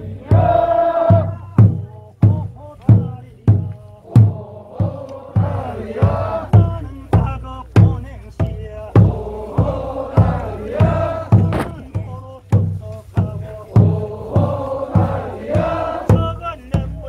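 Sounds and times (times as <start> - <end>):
group chanting folk song: 0.0 - 17.0
steady drum beat: 0.0 - 17.0.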